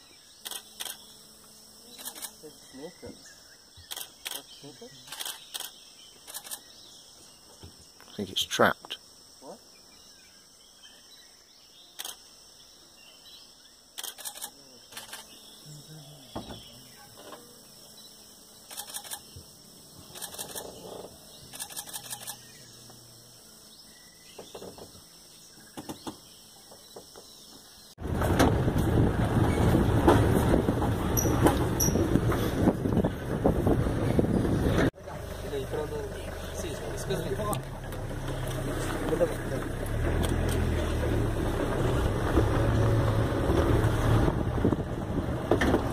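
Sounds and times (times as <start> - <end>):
high insect buzz: 0.0 - 28.0
vehicle engine and wind noise: 28.0 - 45.9.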